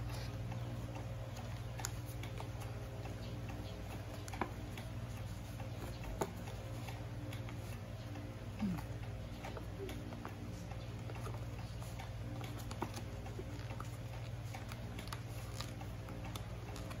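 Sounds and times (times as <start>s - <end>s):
sharp ticks of folds pressed: 0.0s - 17.0s
steady low hum: 0.0s - 17.0s.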